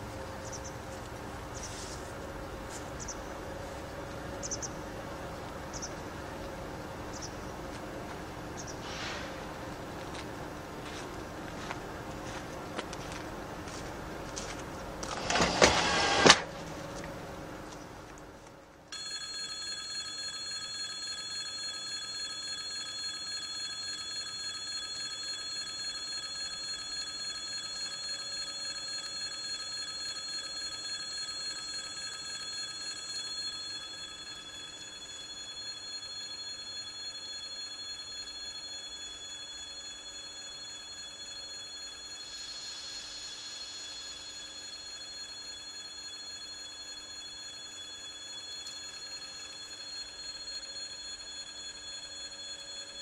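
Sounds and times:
electric warning bell ringing: 0.0 - 17.4, 18.9 - 53.0
diesel locomotive humming: 0.0 - 18.9
loud burst of noise: 8.8 - 9.7.

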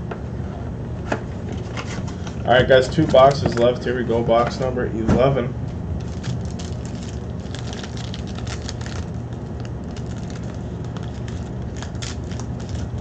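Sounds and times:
steady low hum: 0.0 - 13.0
packaging crinkling: 6.0 - 13.0.

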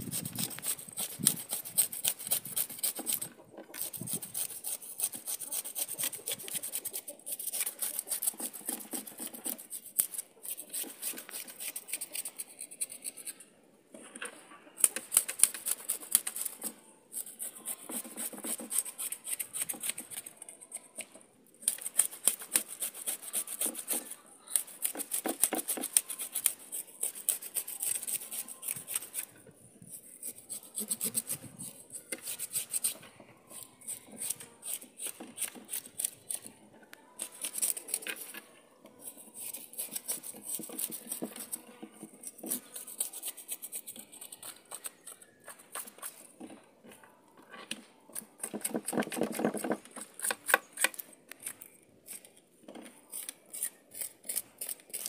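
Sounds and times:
knife scraping fish scales: 0.1 - 13.4, 14.8 - 21.0, 21.6 - 29.3, 30.0 - 33.0, 33.6 - 36.5, 37.2 - 38.4, 39.0 - 41.6, 42.2 - 46.3, 53.0 - 55.0.

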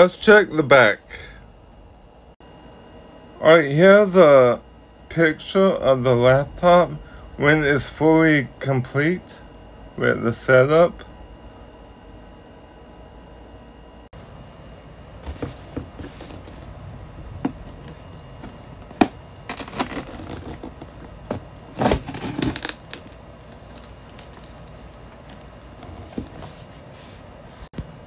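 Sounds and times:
cardboard rustling and tearing: 15.3 - 16.7, 17.6 - 24.8
knife slitting packing tape: 21.8 - 23.0.

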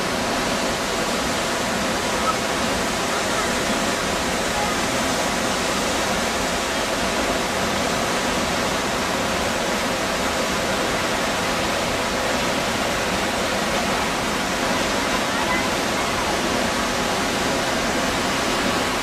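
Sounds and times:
waterfall rushing into pool: 0.0 - 19.0.

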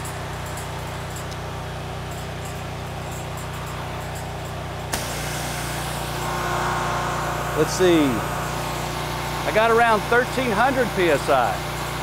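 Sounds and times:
pressure washer engine running: 0.0 - 12.0
high-pressure water spraying: 4.8 - 12.0.

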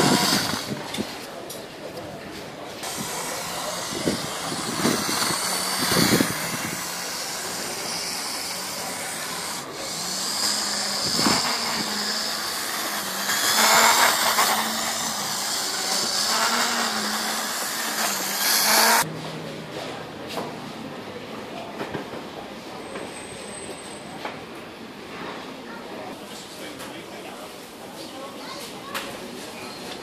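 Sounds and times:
model train motor whining: 0.0 - 1.2, 2.7 - 19.1.

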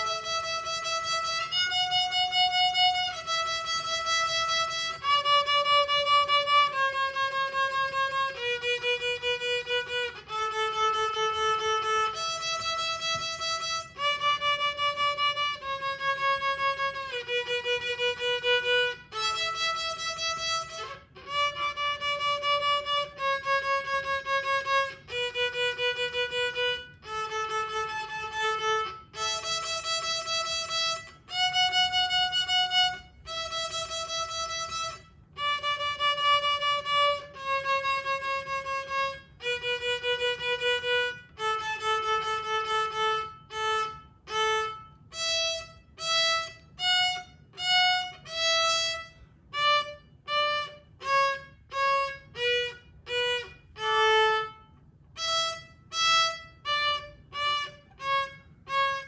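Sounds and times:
violin playing slow melody: 0.0 - 59.0.

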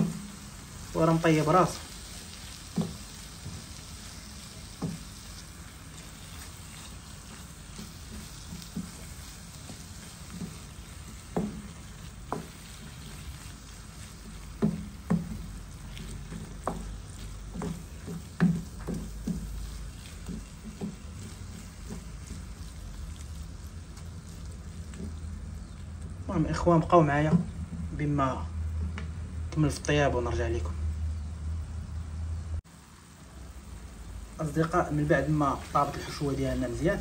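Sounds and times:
food sizzling in a pan: 0.0 - 28.0, 32.6 - 37.0
wooden spoon scraping a pan: 0.0 - 28.1.

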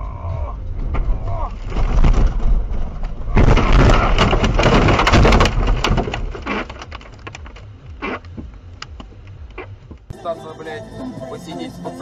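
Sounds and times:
car crashing through snowy brush: 0.7 - 8.2
scattered ticks and scrapes: 0.8 - 9.8.

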